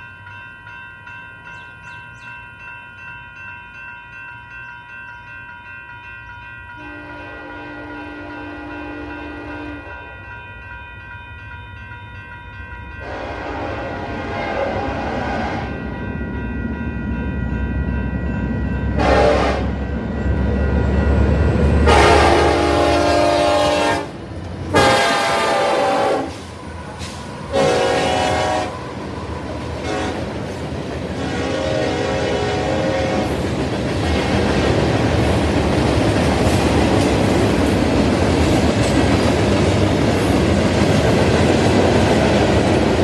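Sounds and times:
crossing bell ringing: 0:00.0 - 0:43.0
locomotive air horn blasts: 0:06.8 - 0:10.0, 0:13.0 - 0:15.8, 0:19.0 - 0:19.9, 0:21.8 - 0:26.5, 0:27.5 - 0:28.8, 0:29.8 - 0:30.4, 0:31.1 - 0:33.4.

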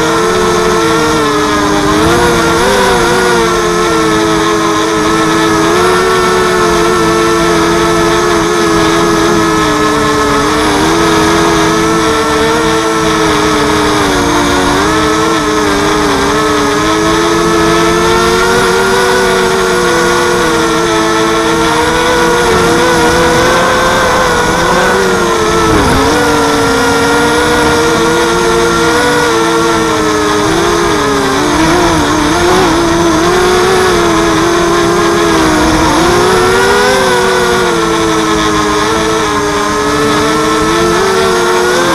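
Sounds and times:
quadcopter motors whining: 0:00.0 - 0:41.9.

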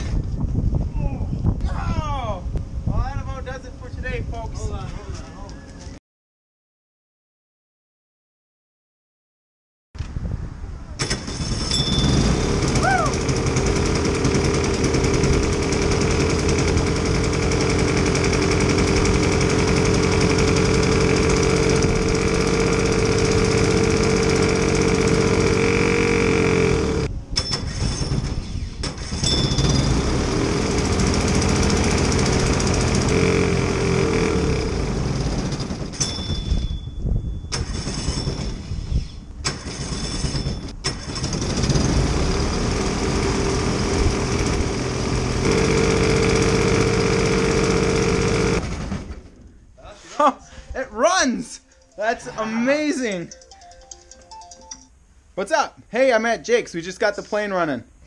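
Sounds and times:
small airplane engine stumbling: 0:11.0 - 0:27.1, 0:28.9 - 0:36.4, 0:40.9 - 0:49.6.

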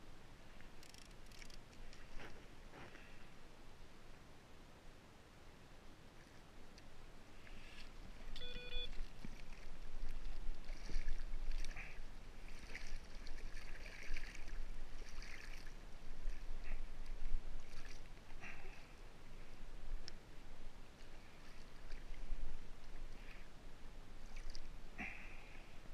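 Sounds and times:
seawater splashing against kayak: 0:08.4 - 0:15.7
low wind rumble on microphone: 0:09.0 - 0:18.4.

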